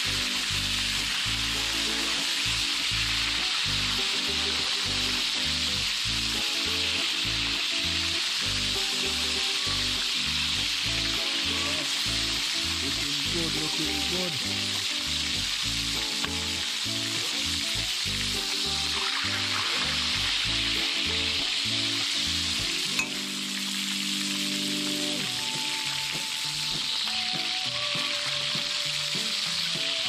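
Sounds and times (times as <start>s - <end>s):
background music with steady beat: 0.0s - 30.0s
lobster sizzling in hot oil: 0.0s - 30.0s.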